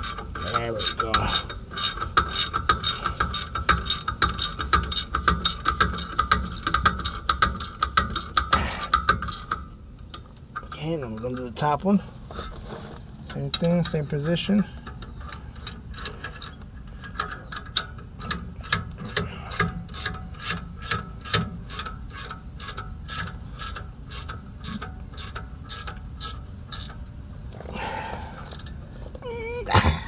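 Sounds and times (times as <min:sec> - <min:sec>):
ratchet wrench clicking: 0:00.0 - 0:09.6, 0:13.4 - 0:27.0, 0:28.4 - 0:28.8.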